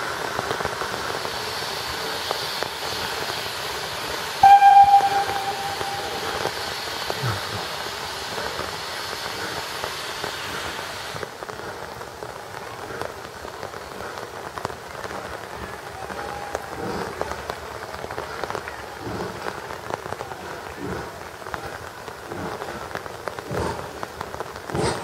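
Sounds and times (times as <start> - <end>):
rain pattering on umbrellas: 0.0 - 25.0
steam locomotive hissing: 0.0 - 25.0
steam whistle: 4.4 - 7.2.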